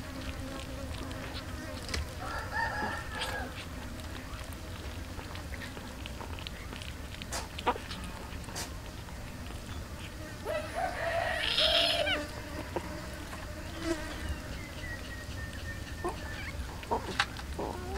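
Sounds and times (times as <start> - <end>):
kittens eating from metal tray: 0.0 - 17.9
rooster crowing: 2.2 - 3.6, 10.4 - 12.3.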